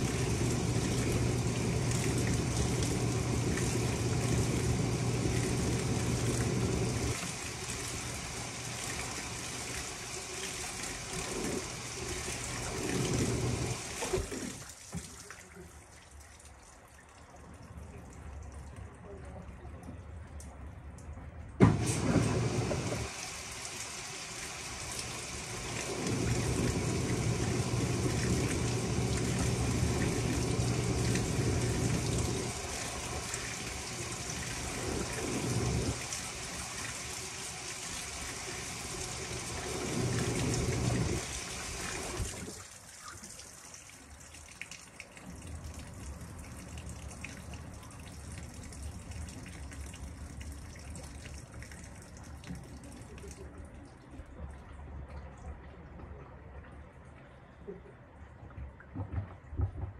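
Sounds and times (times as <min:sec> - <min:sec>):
washing machine motor humming: 0:00.0 - 0:14.6, 0:21.6 - 0:42.6
water pouring into tub: 0:00.0 - 0:15.6, 0:21.6 - 0:53.4.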